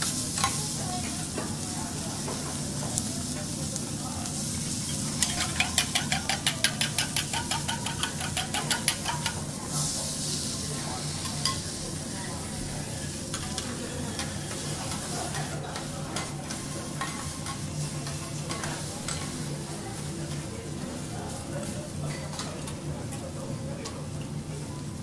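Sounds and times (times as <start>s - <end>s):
vegetables sizzling: 0.0s - 22.8s
metal spatulas tapping griddle: 5.2s - 9.5s.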